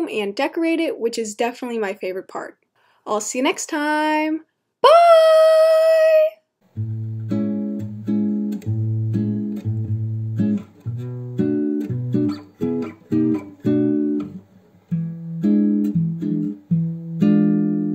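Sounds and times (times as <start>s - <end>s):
guitar chords plucked: 6.7s - 17.9s.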